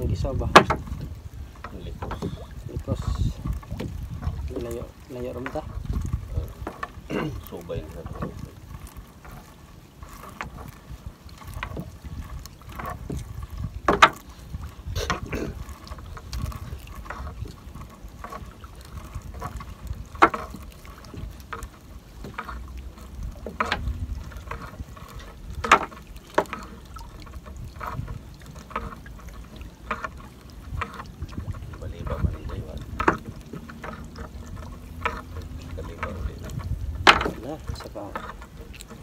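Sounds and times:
net knocking against boat hull: 0:00.0 - 0:02.4, 0:12.8 - 0:14.3, 0:27.8 - 0:38.4.

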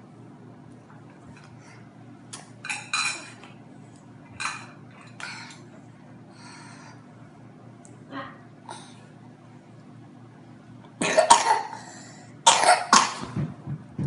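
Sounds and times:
low steady hum: 0:00.0 - 0:14.0
tableware clinking and clattering: 0:02.6 - 0:03.4, 0:04.4 - 0:04.8.

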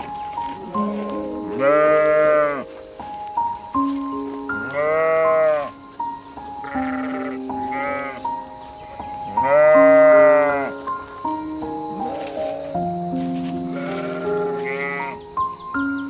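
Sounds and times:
music with long held notes: 0:00.0 - 0:16.0
sheep bleating: 0:00.6 - 0:02.6, 0:04.6 - 0:05.7, 0:06.6 - 0:08.2, 0:09.3 - 0:10.8, 0:13.7 - 0:15.2.

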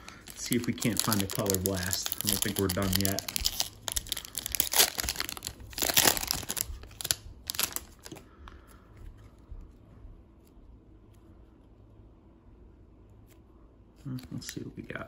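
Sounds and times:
foil wrapper crinkling and tearing: 0:00.0 - 0:08.4
cards ticking as handled: 0:00.2 - 0:08.2.

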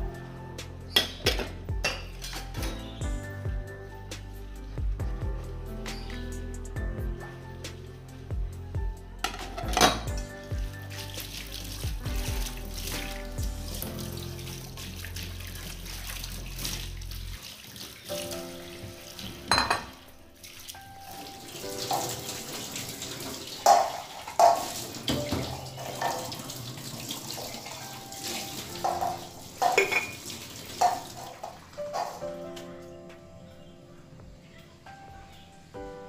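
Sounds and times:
background music: 0:00.0 - 0:36.0
crockery and glass clinking: 0:00.9 - 0:02.6, 0:09.2 - 0:10.1, 0:19.4 - 0:20.0, 0:23.6 - 0:26.3, 0:28.8 - 0:32.2
tap water running into sink: 0:09.2 - 0:32.3.

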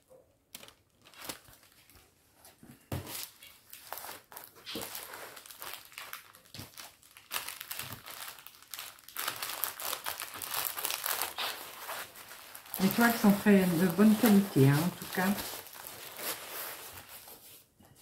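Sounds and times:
canvas and plastic crinkling: 0:00.5 - 0:18.0.

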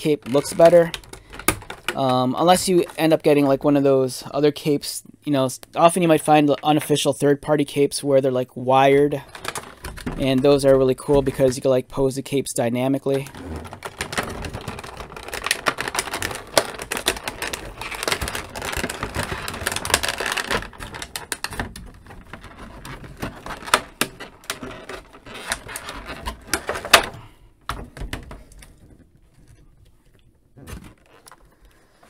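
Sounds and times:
plastic packaging crinkling: 0:00.0 - 0:03.5, 0:09.1 - 0:11.7, 0:13.1 - 0:27.2.

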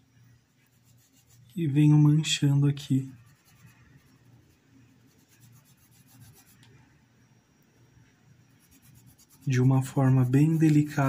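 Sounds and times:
paintbrush dabbing on cloth: 0:00.5 - 0:01.6, 0:02.9 - 0:06.6, 0:08.6 - 0:11.0.

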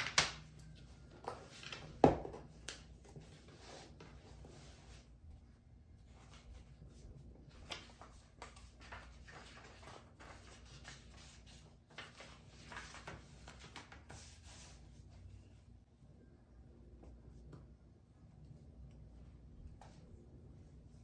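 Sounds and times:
paper rustling: 0:06.0 - 0:15.2.

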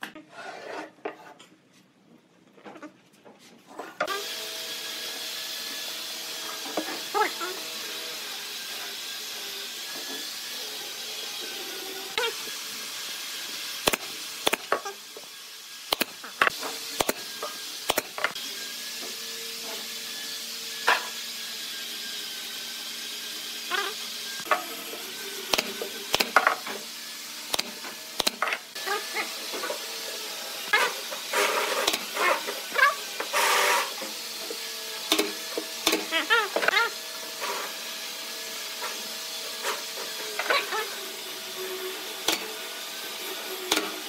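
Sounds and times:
pneumatic nailer shots: 0:13.7 - 0:18.4, 0:25.4 - 0:26.8, 0:27.4 - 0:28.6, 0:30.7 - 0:34.2, 0:35.1 - 0:36.6, 0:42.2 - 0:42.6, 0:43.6 - 0:44.0.

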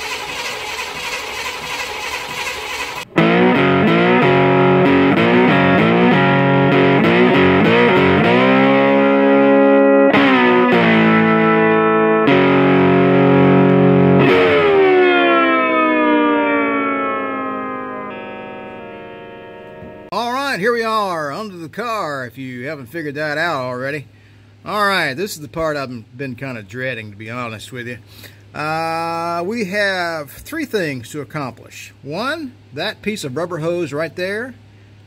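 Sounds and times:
distorted electric guitar chords: 0:03.0 - 0:20.3.

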